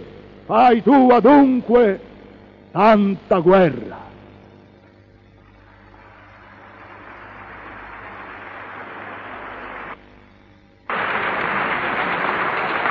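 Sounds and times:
audience applauding: 0:05.9 - 0:10.0, 0:10.9 - 0:12.9.

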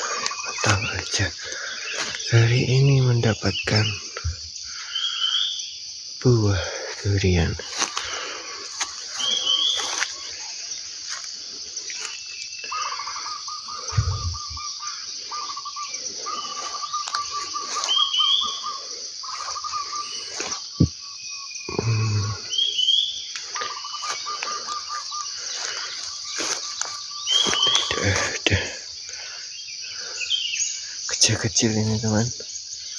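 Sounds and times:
footsteps through wet ground cover: 0:00.0 - 0:02.3, 0:06.7 - 0:12.3, 0:16.4 - 0:18.6, 0:23.4 - 0:28.4
high insect chorus: 0:00.0 - 0:32.9
rising bird chirps: 0:00.0 - 0:32.9.

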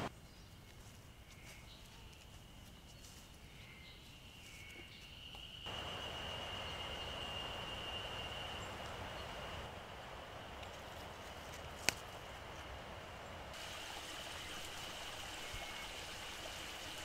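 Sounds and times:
bird chirps: 0:03.6 - 0:09.7
high insect drone: 0:04.5 - 0:11.6.

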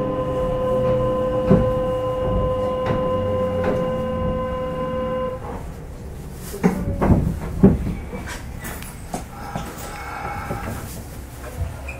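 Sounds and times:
steady departure buzzer: 0:00.0 - 0:05.4.

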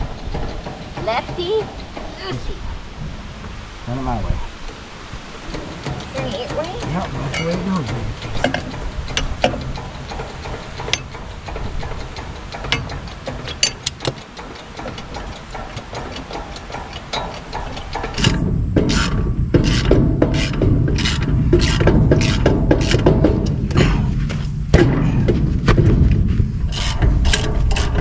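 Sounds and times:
lug wrench rasping: 0:05.5 - 0:23.6, 0:26.6 - 0:28.0
metal clicks and scrapes: 0:05.5 - 0:23.8, 0:26.6 - 0:28.0.

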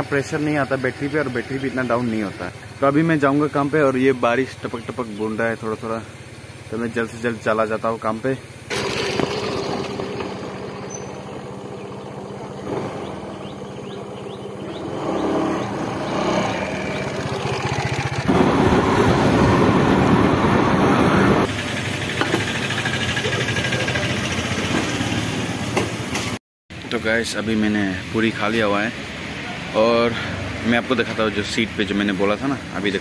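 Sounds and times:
scooter engine idling: 0:00.0 - 0:15.3, 0:16.8 - 0:18.3, 0:21.5 - 0:26.2.

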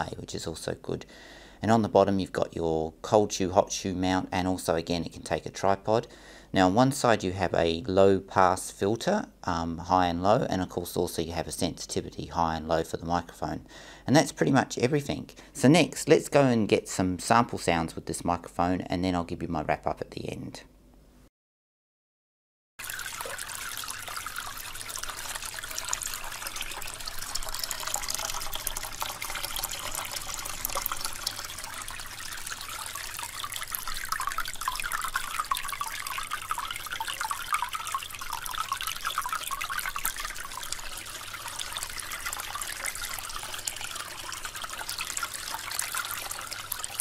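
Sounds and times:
water trickling over pebbles: 0:22.8 - 0:47.0.

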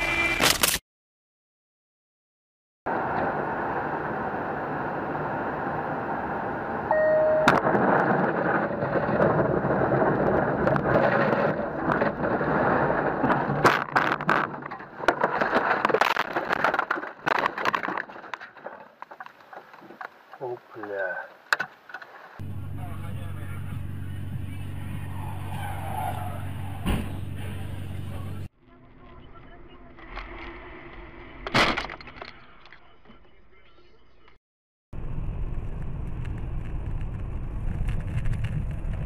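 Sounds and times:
vehicle road noise: 0:02.9 - 0:20.8, 0:21.4 - 0:31.4, 0:35.0 - 0:39.0
short beep: 0:06.9 - 0:07.6.

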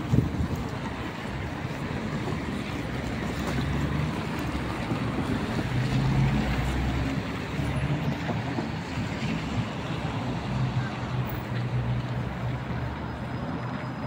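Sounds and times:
wind buffeting microphone: 0:00.0 - 0:03.4
city street traffic: 0:00.0 - 0:14.0
tram on tracks: 0:00.0 - 0:14.0.

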